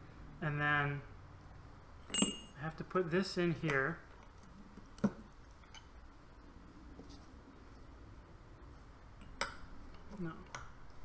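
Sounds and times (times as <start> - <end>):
faint handling of parts: 2.0 - 8.0.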